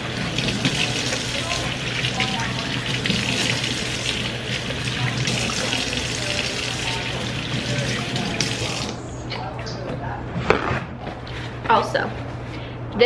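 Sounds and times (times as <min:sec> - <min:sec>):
water running into sink: 0:00.0 - 0:09.0.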